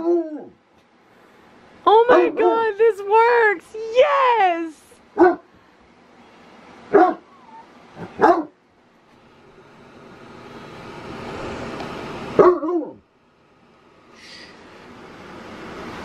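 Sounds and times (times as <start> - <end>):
small dog barking: 2.1 - 2.6, 5.2 - 5.5, 6.9 - 8.6, 12.4 - 13.0.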